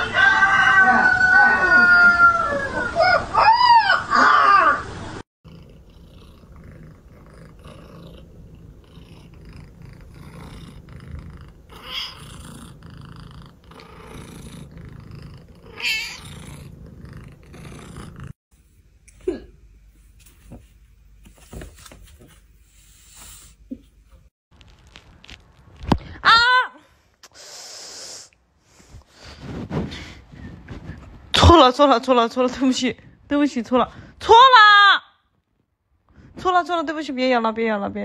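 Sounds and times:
pet animal yowling: 0.2s - 5.0s, 11.7s - 12.4s, 15.6s - 16.3s.

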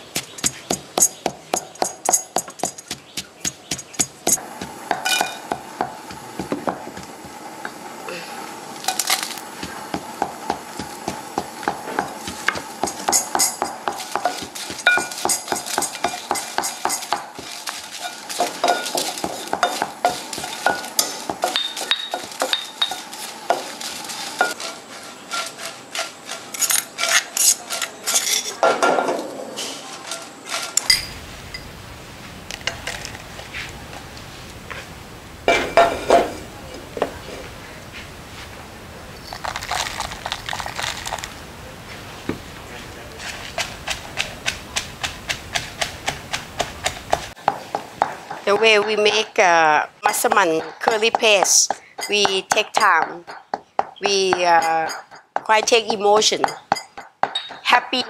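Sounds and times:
stone pestle striking mortar: 0.1s - 7.1s, 9.6s - 17.6s, 43.6s - 49.3s, 50.1s - 58.0s
wooden spatula scraping a pan: 9.6s - 28.4s.

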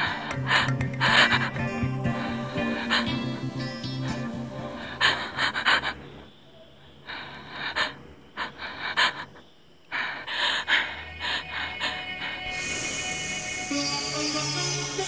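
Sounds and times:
person gasping for breath: 0.0s - 6.0s.

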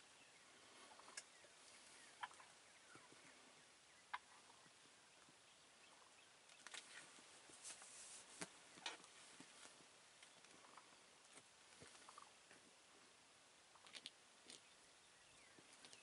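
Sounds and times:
turkeys clucking: 0.7s - 6.7s, 10.5s - 11.0s, 11.9s - 12.4s
soft clicks and rustles: 6.5s - 12.7s.

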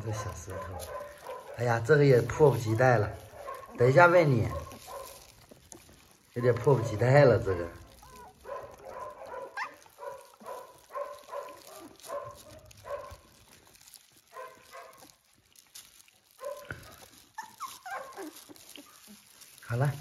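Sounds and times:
puppies whimpering: 2.3s - 10.9s, 15.8s - 19.6s.

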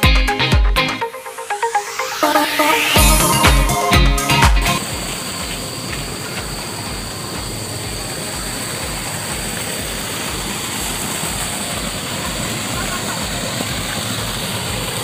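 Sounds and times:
water rushing from outflow: 4.8s - 15.0s.

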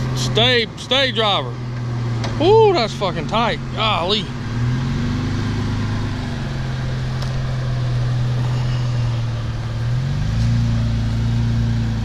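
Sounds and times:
engine running at low revs: 0.0s - 12.0s.

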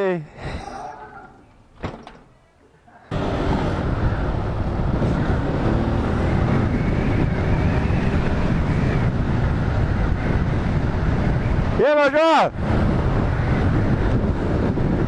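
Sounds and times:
wind rushing over microphone: 3.1s - 15.0s.

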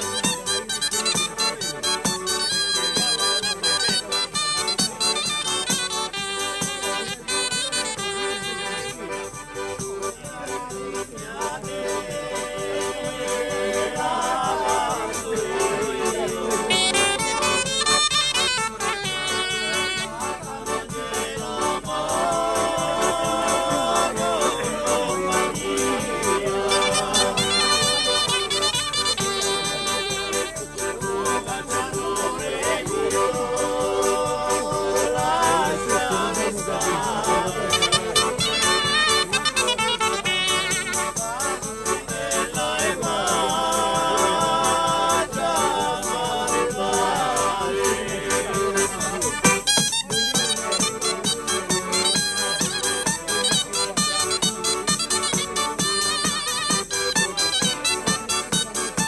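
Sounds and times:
small pipe playing: 0.0s - 42.0s, 43.1s - 59.0s
jingling frame drum: 0.0s - 59.0s
piano accordion tune: 0.0s - 59.0s
tambourine beat: 0.0s - 59.0s.

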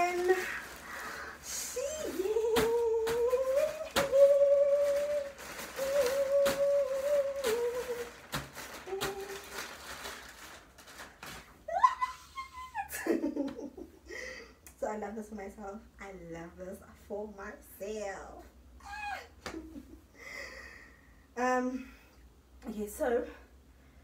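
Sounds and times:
woman humming: 1.4s - 8.2s, 8.8s - 9.6s.

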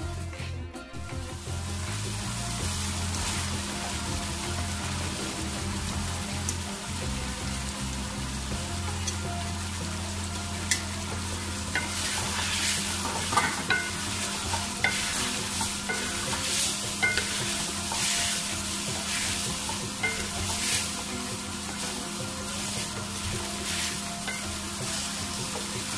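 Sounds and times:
vegetables sizzling in oil: 1.0s - 25.9s
spatula knocking on pan: 11.6s - 25.9s.

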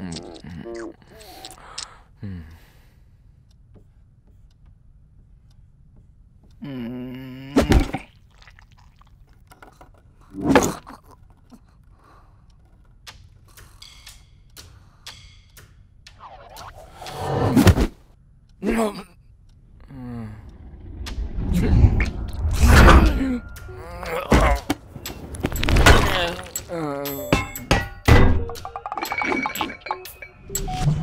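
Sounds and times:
faint clicks: 11.0s - 17.2s, 19.5s - 22.8s
cartoon vocal groan: 22.9s - 24.7s.

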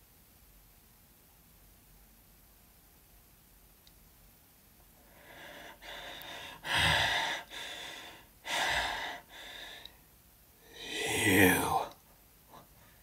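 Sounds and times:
person gasping breaths: 5.0s - 10.0s, 10.6s - 12.0s.

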